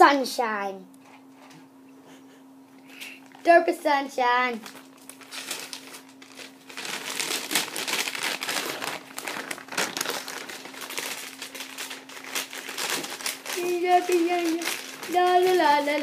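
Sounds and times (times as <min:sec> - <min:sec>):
faint steady hum: 0:00.0 - 0:16.0
bag crinkling: 0:04.6 - 0:16.0.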